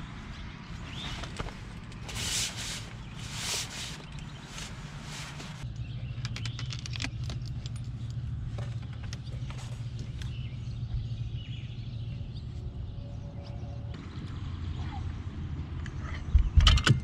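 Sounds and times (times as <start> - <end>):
fabric rustling: 0.7 - 5.6.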